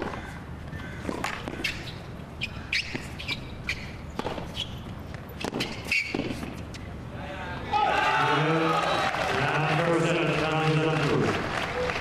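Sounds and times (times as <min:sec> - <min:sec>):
tennis ball bouncing: 0:00.0 - 0:06.9
racquet striking tennis ball: 0:01.0 - 0:02.0, 0:02.7 - 0:06.8.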